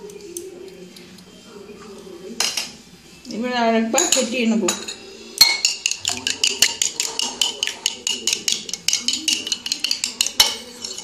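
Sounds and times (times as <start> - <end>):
metal spoon beating batter in bowl: 4.0 - 11.0.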